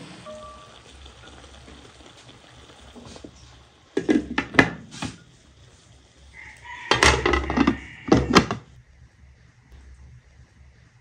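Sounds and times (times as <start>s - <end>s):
pot lids clattering and scraping: 4.0s - 5.3s, 6.9s - 8.7s.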